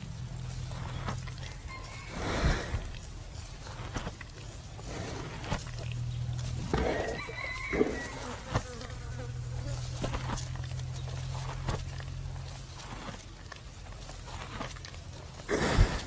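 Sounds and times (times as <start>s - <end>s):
buffalo chewing cud: 0.0s - 16.0s
rooster crowing: 1.4s - 2.6s, 6.7s - 8.6s
flies buzzing: 4.9s - 11.9s.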